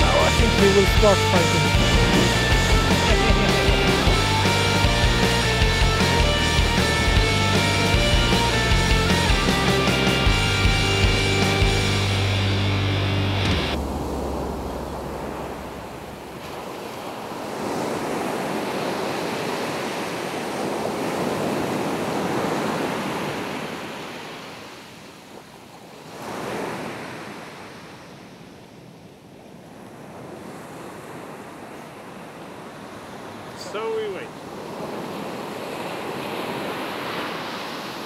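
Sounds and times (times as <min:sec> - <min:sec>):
ocean surf breaking on beach: 0:00.0 - 0:08.5, 0:13.8 - 0:38.0
wind on microphone: 0:01.6 - 0:04.3.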